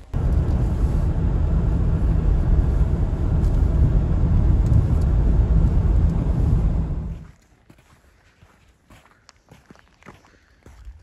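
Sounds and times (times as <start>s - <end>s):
car tyre and engine rumble: 0.0s - 7.3s.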